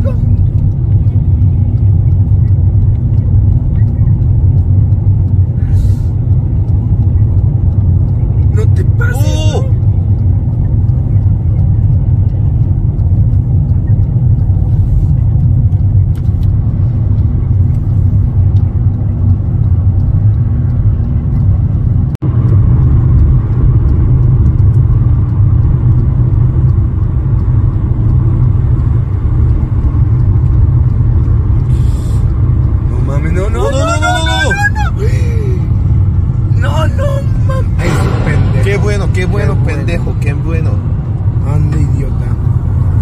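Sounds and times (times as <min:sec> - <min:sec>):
road and engine noise in car: 0:00.0 - 0:43.0.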